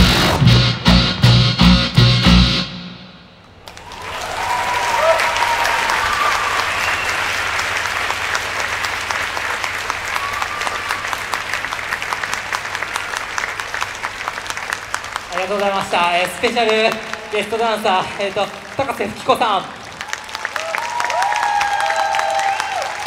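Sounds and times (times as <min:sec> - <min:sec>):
audience cheering: 0:03.6 - 0:14.2, 0:15.2 - 0:23.0
audience applause: 0:03.6 - 0:23.0.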